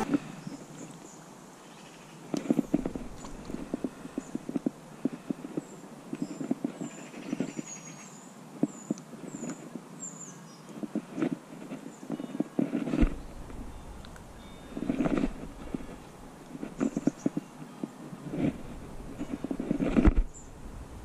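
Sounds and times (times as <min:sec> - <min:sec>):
bird chirping: 0:05.5 - 0:10.9, 0:13.2 - 0:19.5, 0:20.2 - 0:20.8.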